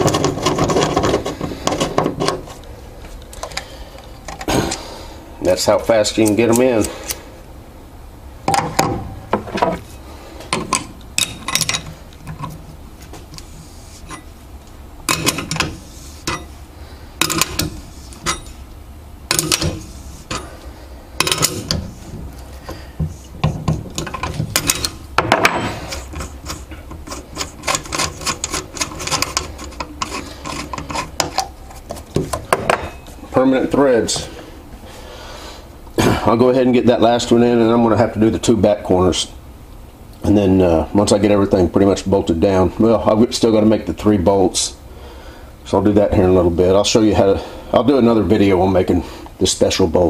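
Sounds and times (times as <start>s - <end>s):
metallic clicks and scrapes of hand tool: 25.9s - 31.8s.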